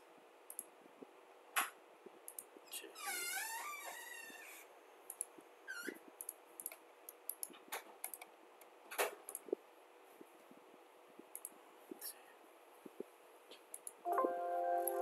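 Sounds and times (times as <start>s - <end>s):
computer mouse clicks: 0.5s - 0.7s, 2.3s - 2.5s, 5.1s - 5.3s, 6.2s - 9.5s, 11.3s - 11.6s, 13.5s - 14.0s.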